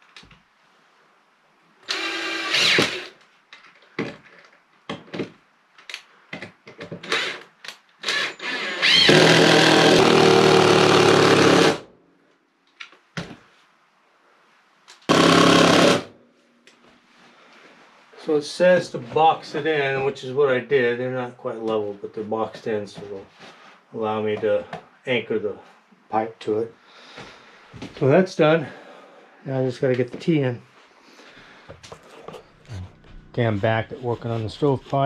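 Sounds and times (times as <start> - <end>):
cordless drill driving screws: 1.9 - 3.2, 7.0 - 11.8, 15.1 - 16.1.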